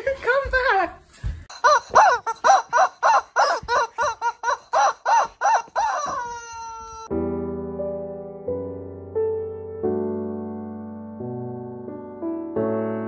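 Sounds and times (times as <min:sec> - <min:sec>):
rubber chicken toy squawking: 0:01.5 - 0:07.1.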